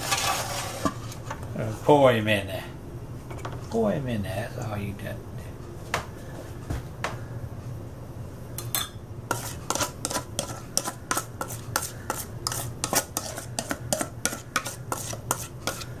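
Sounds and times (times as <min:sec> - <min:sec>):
utensil scraping mixing bowl: 0:00.0 - 0:01.2, 0:09.3 - 0:16.0.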